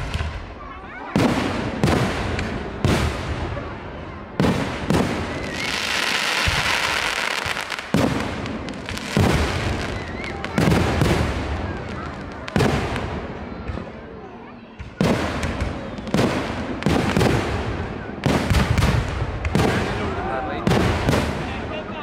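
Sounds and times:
firework shells booming: 4.4 - 14.0, 14.8 - 21.5
fireworks crackling hiss: 4.5 - 13.2.

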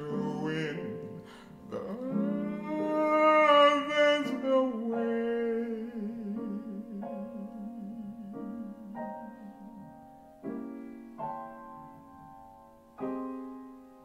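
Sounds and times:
man singing held note: 0.0 - 9.0
jazz piano chords: 0.0 - 14.0.

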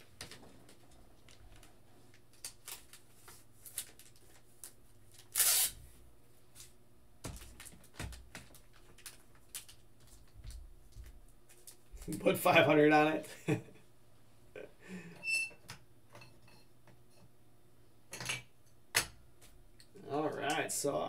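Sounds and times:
plastic rustles: 0.3 - 5.7, 7.3 - 12.1.

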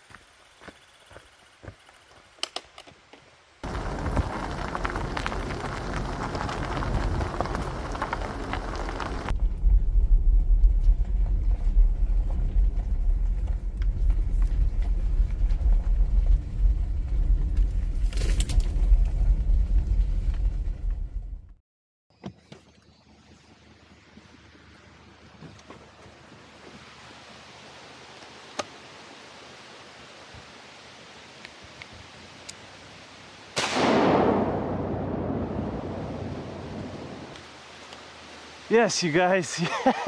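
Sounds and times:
vehicle rumbling on dirt road: 0.0 - 30.6, 34.0 - 38.5
footsteps on gravel: 3.6 - 9.3.

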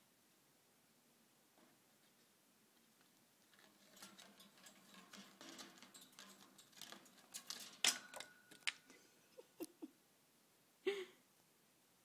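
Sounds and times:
bird claws clicking on cage: 3.8 - 8.8.

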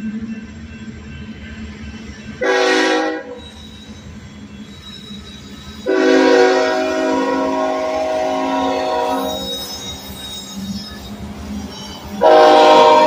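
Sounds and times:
locomotive air horn blasts: 2.4 - 3.4, 5.8 - 9.5, 12.2 - 13.0.

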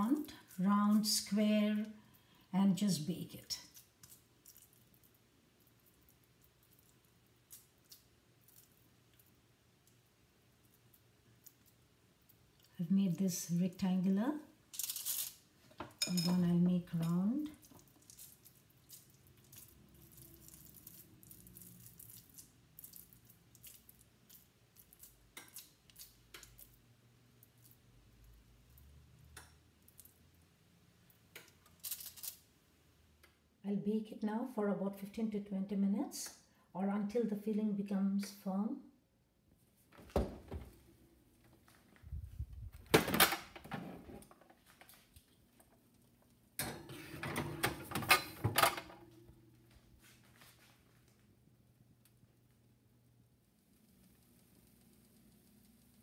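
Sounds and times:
hands handling dough clicks and rustles: 3.6 - 12.8, 14.6 - 33.4, 39.6 - 46.6
metal pans clanking on oven rack: 46.6 - 48.8.

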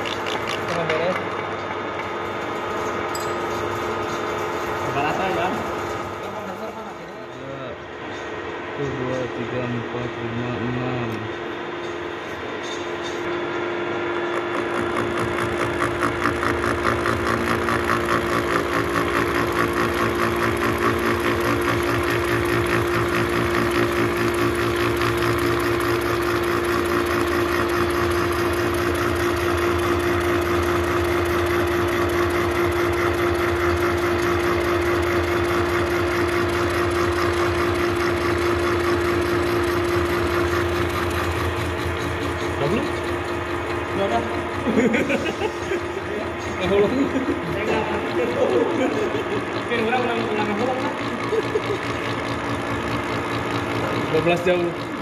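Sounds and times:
milling machine hum: 0.0 - 55.0
gear cutter rattling: 14.4 - 45.2.

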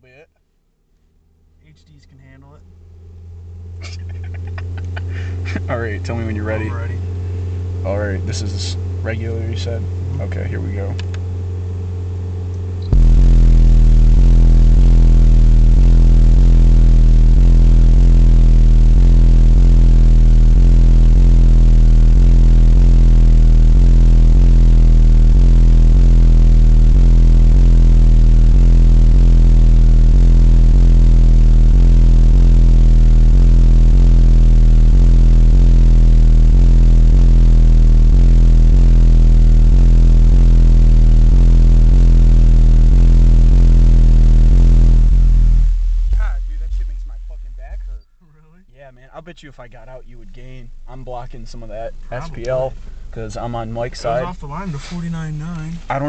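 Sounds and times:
loud pulsing deep bass tone: 0.0 - 56.0.

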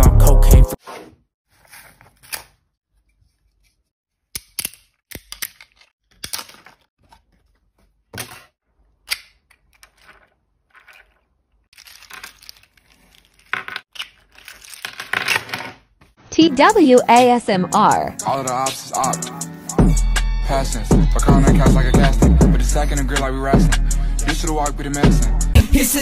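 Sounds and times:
plastic figure clicking and cracking: 4.3 - 6.9, 9.0 - 15.5
rustling: 9.9 - 14.9.

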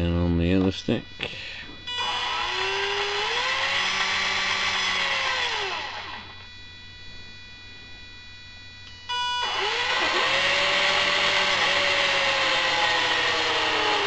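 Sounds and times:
steady high whine: 0.0 - 14.0
drill motors spinning: 1.9 - 6.5, 9.1 - 14.0.

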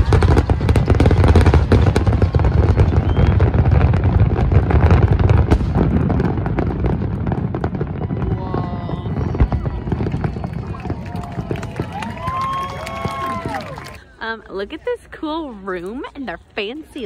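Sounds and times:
firework shells booming: 0.0 - 12.4
fireworks crackling: 0.0 - 14.0.

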